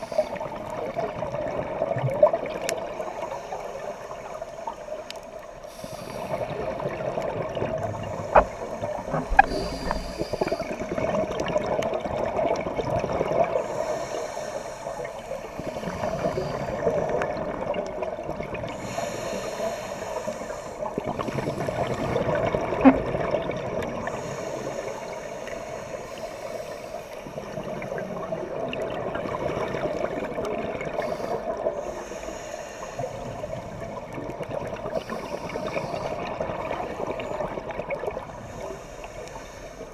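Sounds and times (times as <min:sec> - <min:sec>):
regulator inhalation hiss: 0:05.6 - 0:06.6, 0:08.0 - 0:10.9, 0:13.6 - 0:16.9, 0:18.7 - 0:22.3, 0:24.0 - 0:28.2, 0:30.9 - 0:33.8, 0:34.9 - 0:37.4, 0:38.3 - 0:39.9
exhalation bubbling: 0:21.3 - 0:23.8.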